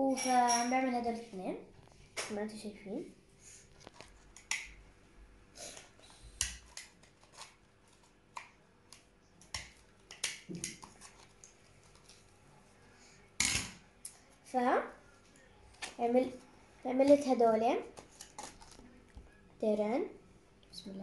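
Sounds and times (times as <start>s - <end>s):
paper rustling: 18.0s - 19.0s.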